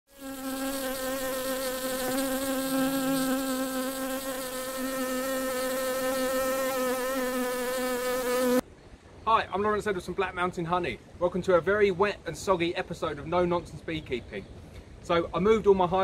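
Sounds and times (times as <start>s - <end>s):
bee buzzing: 0.1s - 8.6s.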